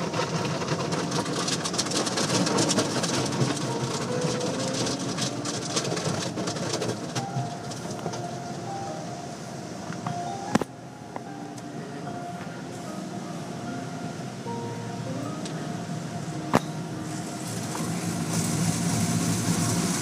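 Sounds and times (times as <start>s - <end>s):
car wash rumble: 0.0s - 20.0s
water spray: 17.4s - 20.0s.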